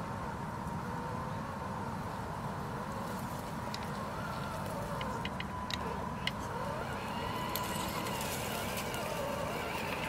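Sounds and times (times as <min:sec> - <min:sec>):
electric motor whining: 0:04.0 - 0:10.0.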